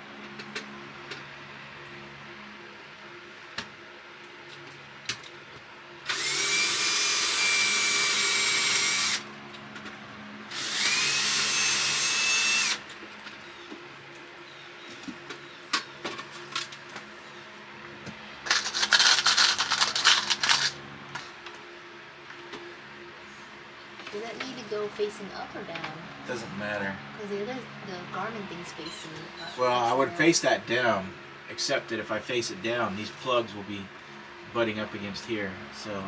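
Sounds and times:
cordless drill whining: 6.1 - 9.3, 10.5 - 12.8.

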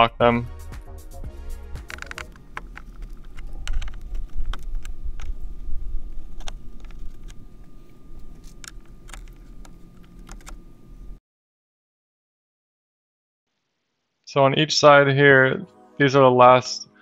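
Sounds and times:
low rumble: 1.3 - 8.4.

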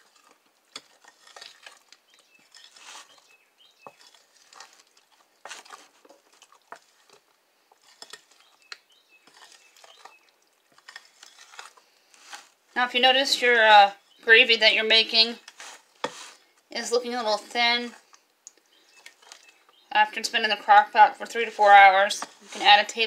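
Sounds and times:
spoon scraping glass bowl: 7.8 - 12.5, 15.1 - 16.4, 21.3 - 23.0.

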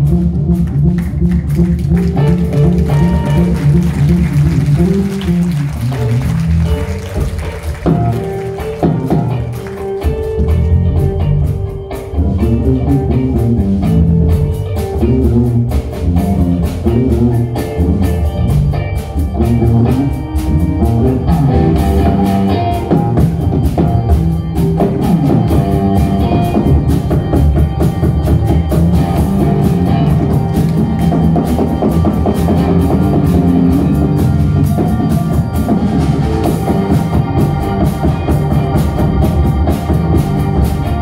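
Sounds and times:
drum kit: 0.0 - 41.0
guitar: 0.0 - 41.0
keyboards: 0.0 - 41.0.

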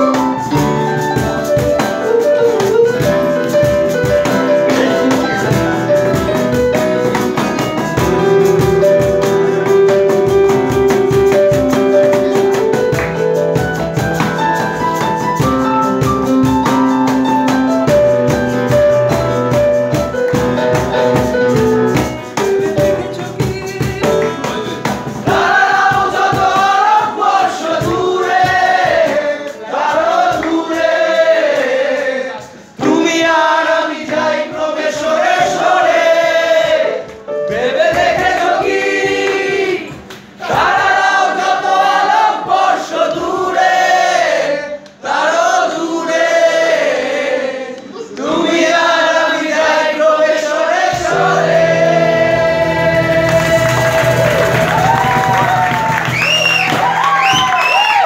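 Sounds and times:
keyboard cajon and guitar playing: 0.0 - 44.1, 47.8 - 58.0
group of men singing: 22.4 - 54.8.

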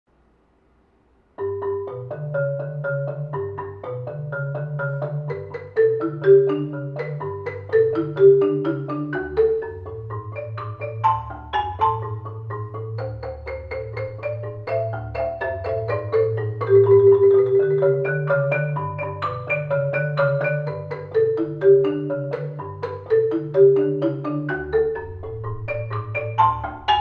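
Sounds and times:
low marimba bass notes: 1.4 - 27.0
marimba melody: 1.4 - 27.0.

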